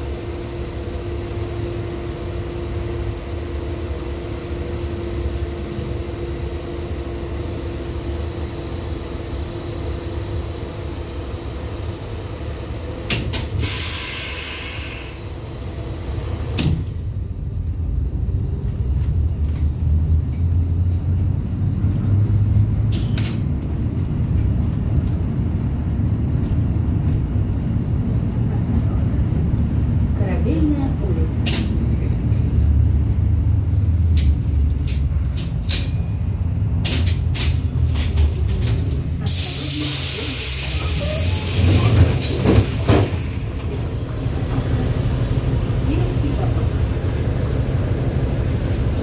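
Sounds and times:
tram rumbling: 0.0 - 49.0
hiss: 13.6 - 15.2, 39.2 - 43.5.

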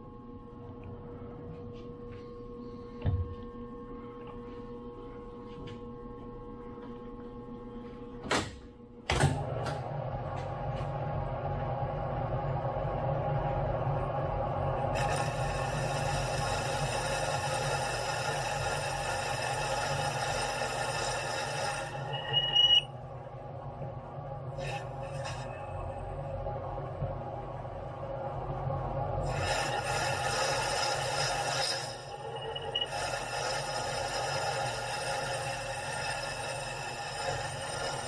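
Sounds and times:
lathe spindle running: 14.8 - 22.9, 29.7 - 38.0
high whine of tool cutting: 15.0 - 22.9, 29.2 - 38.0.

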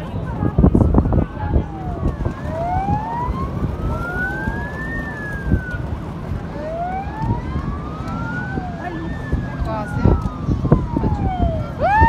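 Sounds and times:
wailing siren: 0.1 - 12.0
fainter siren glides: 0.5 - 12.0.

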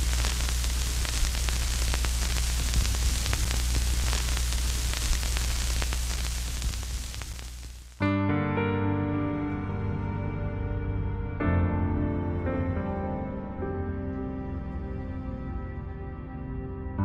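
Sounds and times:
low electrical hum: 0.0 - 8.0
static hiss with crackles: 0.0 - 8.0.

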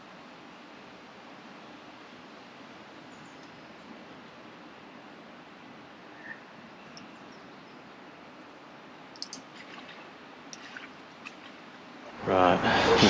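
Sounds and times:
faint steady hiss: 0.0 - 13.0
small light clicks: 6.9 - 7.1, 9.1 - 9.5.

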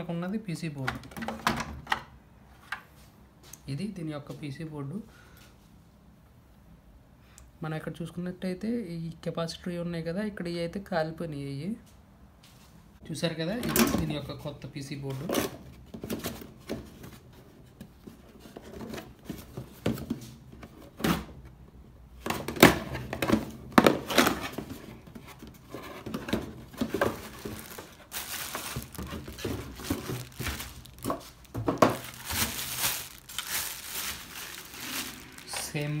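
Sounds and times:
bubble wrap crinkling: 23.9 - 36.0
cardboard box being opened: 25.5 - 35.6.

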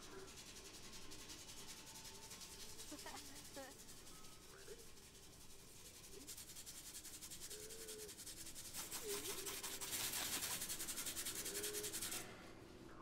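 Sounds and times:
brush scrubbing tile grout: 0.0 - 12.3.

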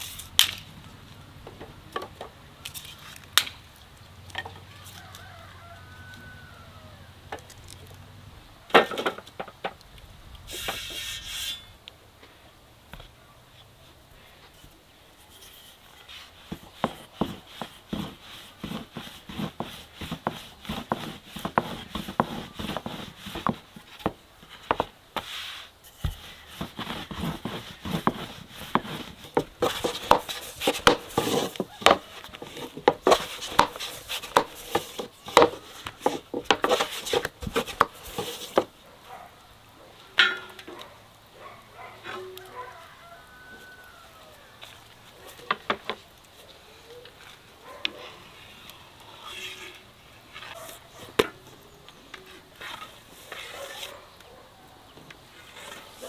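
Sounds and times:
firewood sticks clattering on metal: 0.0 - 0.7, 8.7 - 9.8, 15.2 - 38.8, 40.2 - 40.9
rolling pin on wooden board: 16.1 - 38.7.

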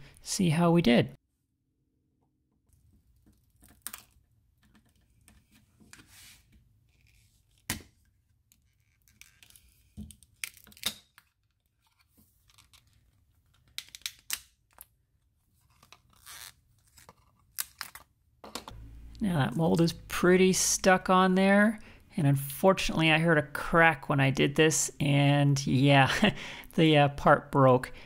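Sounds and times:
tape peeling off: 15.8 - 18.0.

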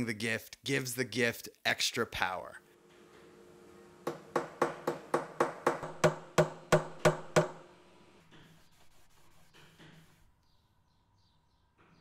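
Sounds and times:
hammer striking metal punches: 4.1 - 7.7.

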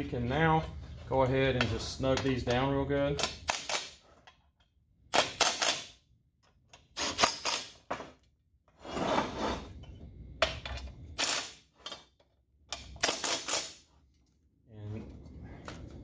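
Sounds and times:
steel frame scraping on workbench: 8.8 - 9.8.

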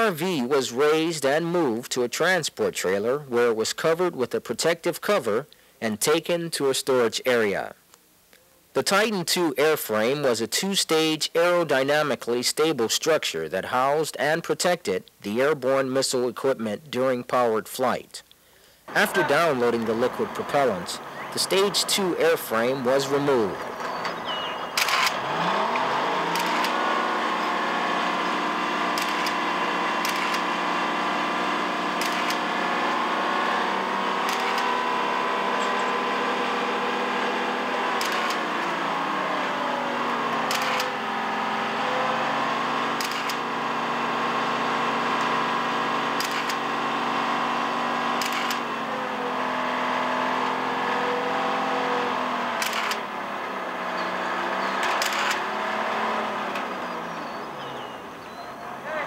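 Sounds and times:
crane engine running under load: 18.9 - 49.8.

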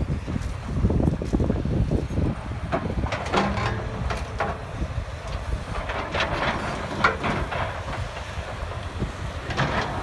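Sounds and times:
diesel engines running low: 0.0 - 10.0
wind buffeting microphone: 0.0 - 10.0
rubble clanking and crunching: 2.6 - 10.0.

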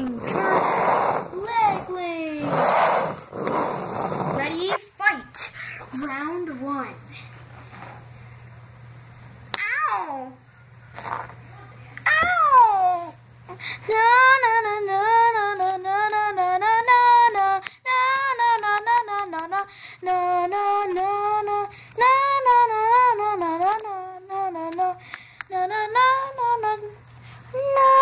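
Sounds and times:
child singing: 13.9 - 28.0.

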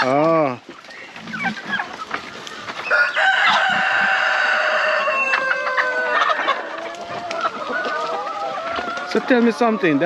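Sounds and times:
rooster crowing: 2.8 - 9.2.

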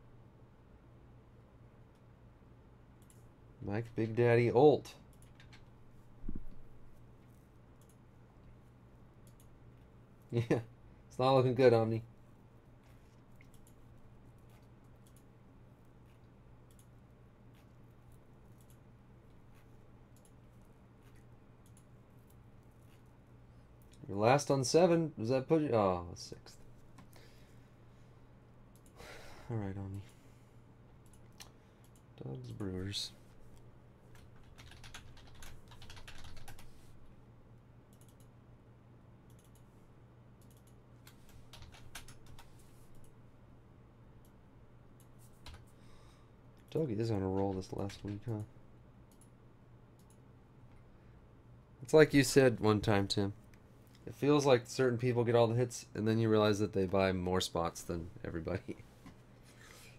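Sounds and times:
low steady hum: 0.0 - 59.9
computer mouse clicks: 3.0 - 3.3, 5.1 - 5.7, 7.8 - 8.0, 9.2 - 9.6, 13.4 - 15.3, 16.1 - 17.8, 18.4 - 18.8, 20.1 - 22.4, 28.7 - 29.0, 31.0 - 32.1, 37.9 - 38.4, 39.2 - 39.7, 40.4 - 43.2, 49.1 - 50.8.

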